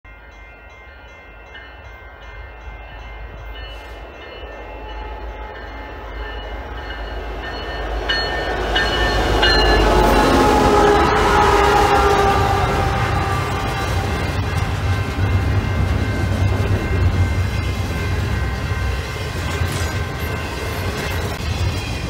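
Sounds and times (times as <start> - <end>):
diesel locomotive engine rumble: 1.1 - 22.0
train horn blasts: 8.5 - 15.7.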